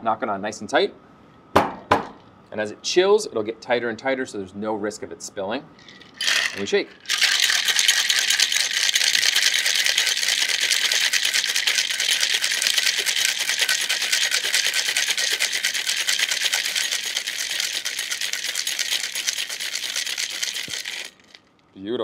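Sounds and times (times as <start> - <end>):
ice rattling in cocktail shaker: 5.8 - 21.5.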